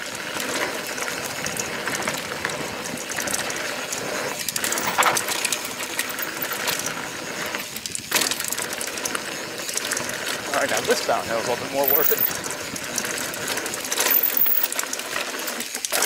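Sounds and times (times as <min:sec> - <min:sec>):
bike chain and frame rattling: 0:00.0 - 0:16.0
bike tyres crunching over dirt: 0:00.0 - 0:16.0.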